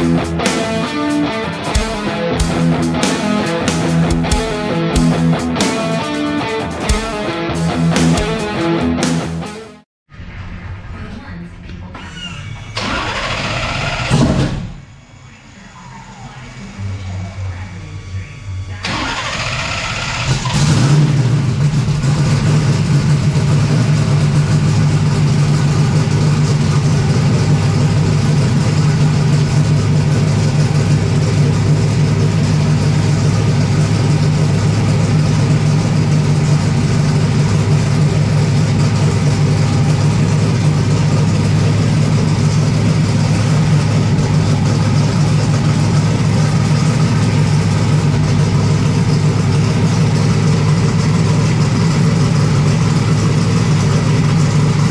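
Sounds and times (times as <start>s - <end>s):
race car engine idling: 0.0s - 9.3s, 16.2s - 54.9s.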